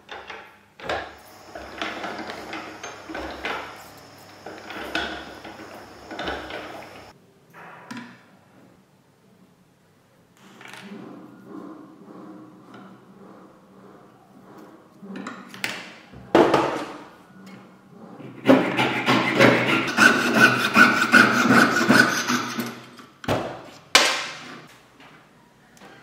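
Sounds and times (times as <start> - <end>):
saw cutting metal sheet: 1.2 - 7.1, 18.2 - 22.9.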